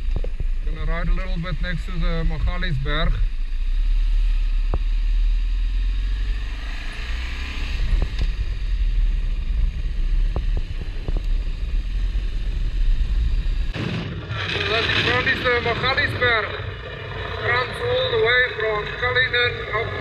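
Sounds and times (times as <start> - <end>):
wind rumble on microphone: 0.0 - 3.4, 6.0 - 20.0
motorcycle engine running: 0.0 - 13.8.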